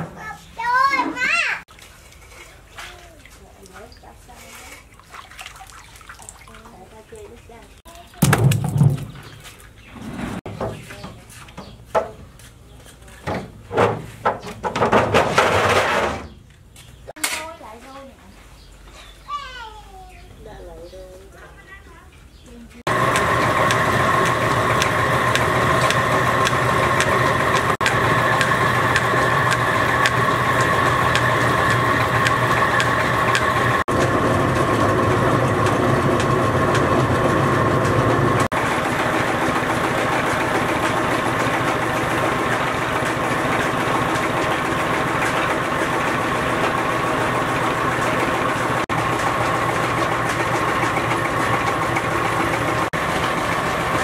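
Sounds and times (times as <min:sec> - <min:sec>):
grinding machine whine: 0:22.9 - 0:54.0
small engine running: 0:22.9 - 0:54.0.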